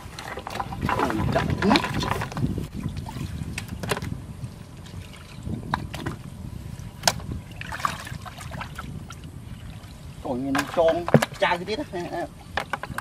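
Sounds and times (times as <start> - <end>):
hands sloshing in muddy water: 0.0 - 3.6, 6.8 - 10.0
water slaps and splashes: 0.0 - 4.2, 6.9 - 11.7.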